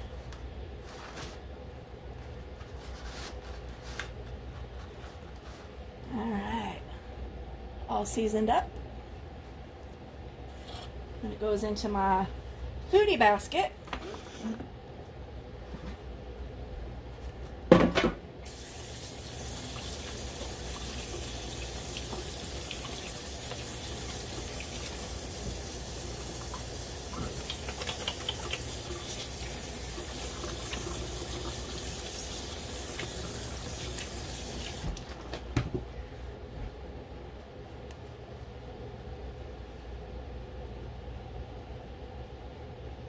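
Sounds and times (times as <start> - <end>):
kitchen tap running into sink: 18.4 - 35.0.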